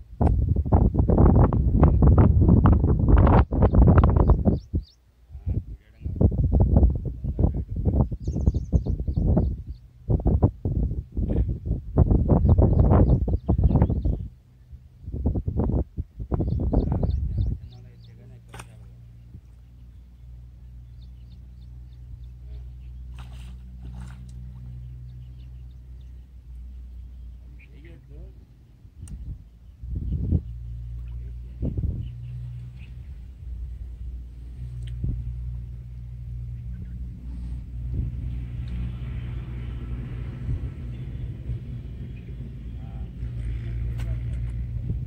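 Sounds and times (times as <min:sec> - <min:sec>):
low motor rumble: 0:00.0 - 0:45.0
steady low hum: 0:00.0 - 0:45.0
fish splashing in water: 0:23.0 - 0:24.7.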